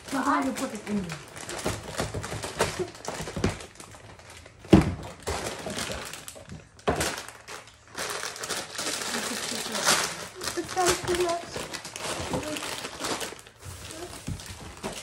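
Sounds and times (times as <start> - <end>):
plastic snack bags crinkling: 0.0 - 15.0.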